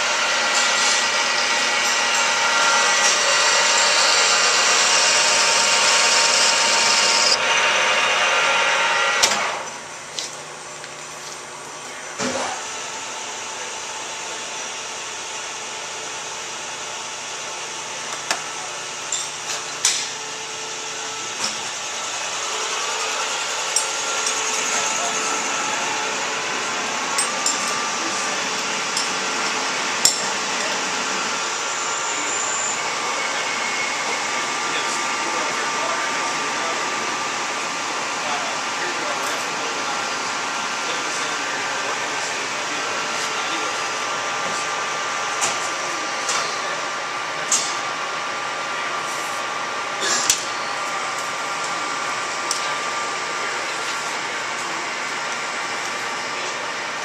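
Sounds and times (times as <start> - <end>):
machinery whirring: 0.0 - 9.9, 18.2 - 46.9
metal lathe running: 0.0 - 10.0, 12.6 - 57.0.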